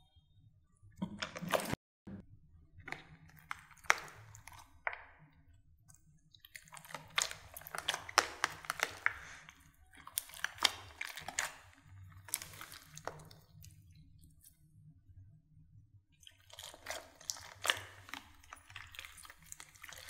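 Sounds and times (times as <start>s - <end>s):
slime kneaded by hand crackling: 6.5s - 13.7s, 16.3s - 20.0s.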